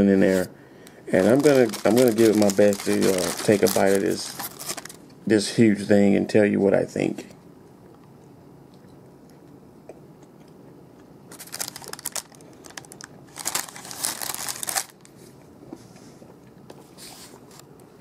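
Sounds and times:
plastic wrapper crinkling: 1.1 - 5.1, 11.3 - 15.2.

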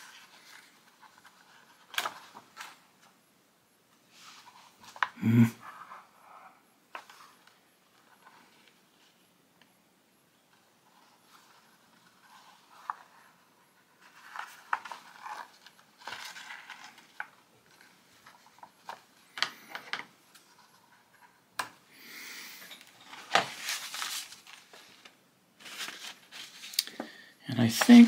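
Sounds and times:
paper rustling: 0.0 - 2.8, 10.5 - 21.4, 23.0 - 28.0.

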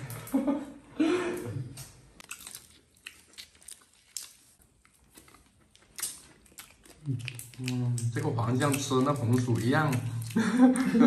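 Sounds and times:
chewing: 1.8 - 11.0.

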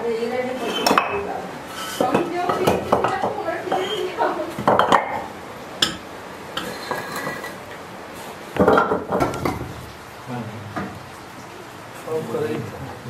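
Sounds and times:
bricks knocking and scraping: 1.8 - 4.0.

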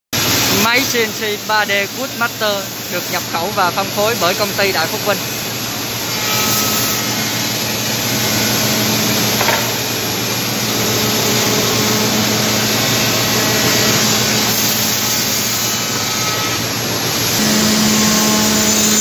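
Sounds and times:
low machine hum: 0.2 - 15.4
router milling wood: 0.3 - 19.0.

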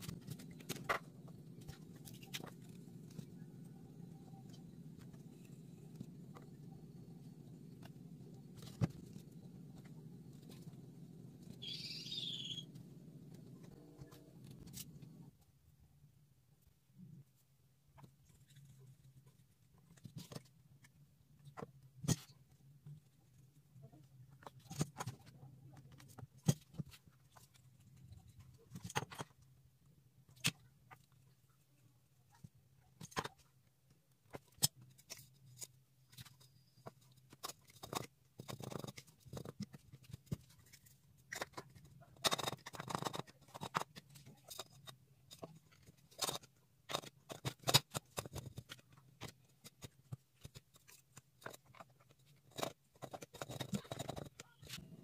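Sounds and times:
faint low hum: 0.0 - 34.3.

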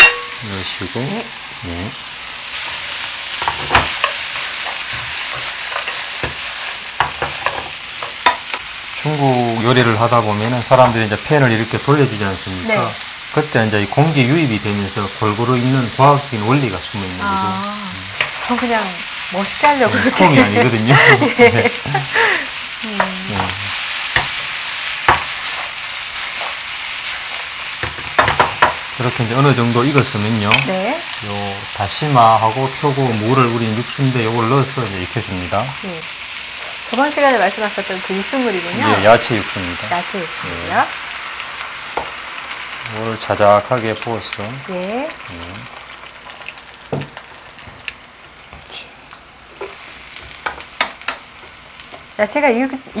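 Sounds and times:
vegetables sizzling in a pan: 0.0 - 53.0
wooden spatula knocking on pan: 27.8 - 28.8, 46.9 - 47.1.

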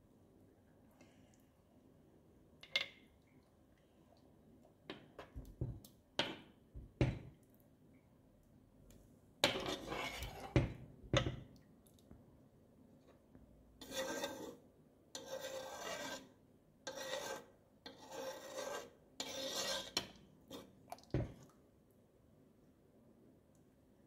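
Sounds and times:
metal spoon scraping a pan: 9.4 - 10.7, 13.8 - 14.6, 15.2 - 20.8.

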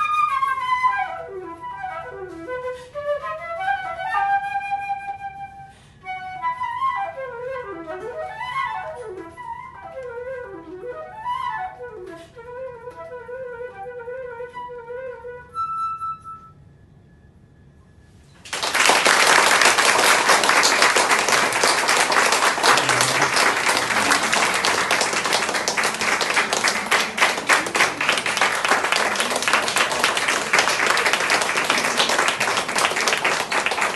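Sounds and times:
soft flute note: 0.0 - 18.3
audience applause: 18.4 - 33.9.

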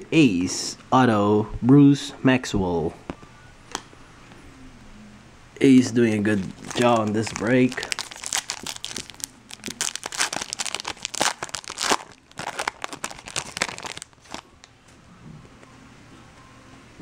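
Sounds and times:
foil wrapper crackling: 6.2 - 14.7.

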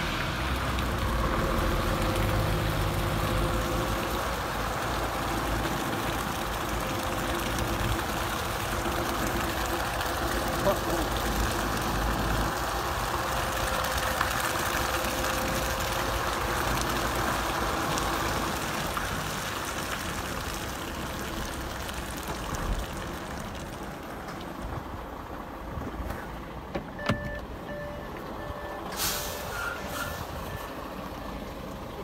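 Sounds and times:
reversing beeper: 27.0 - 30.9.

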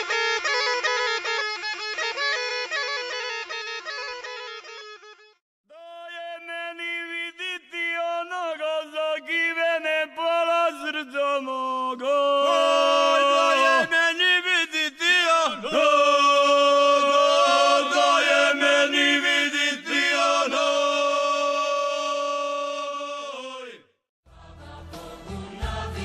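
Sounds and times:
unaccompanied group singing: 15.5 - 26.0.

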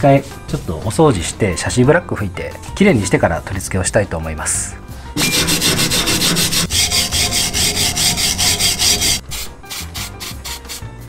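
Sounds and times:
scrubbing rust off metal: 5.2 - 10.8.

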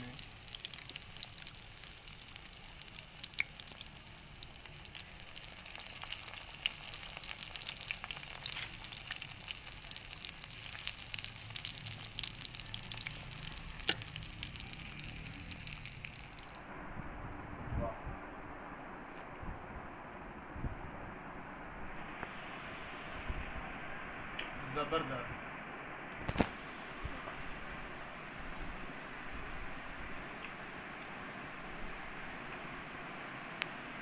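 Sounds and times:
fish sizzling in hot oil: 0.0 - 16.7.

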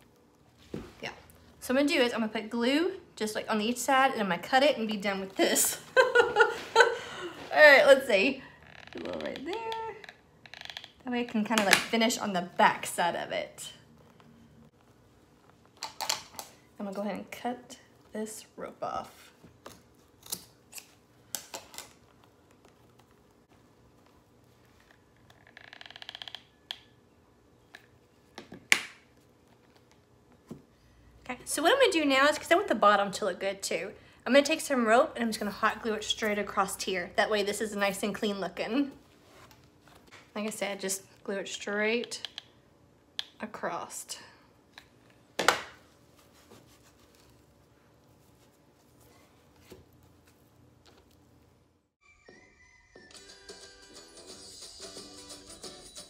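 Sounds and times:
faint steady hum: 0.0 - 25.5.

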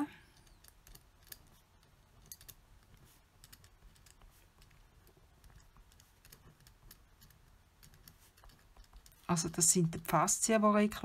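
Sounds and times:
pen scratching on paper: 2.9 - 9.3.

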